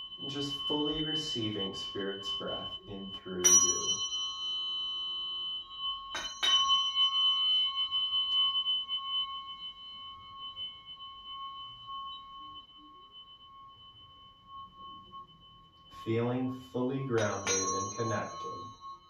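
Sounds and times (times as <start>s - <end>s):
tuning fork struck and ringing: 0.0s - 19.0s.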